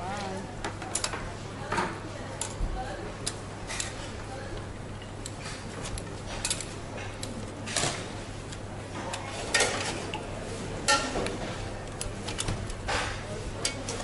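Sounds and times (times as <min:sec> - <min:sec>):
utensils clinking on steel pot: 0:09.1 - 0:11.2, 0:12.3 - 0:14.0.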